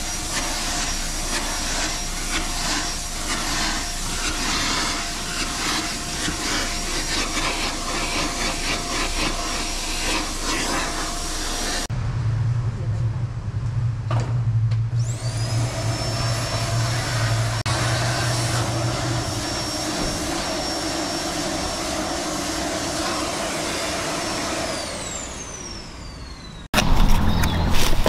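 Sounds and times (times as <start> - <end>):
small motor whining: 15.0 - 27.7.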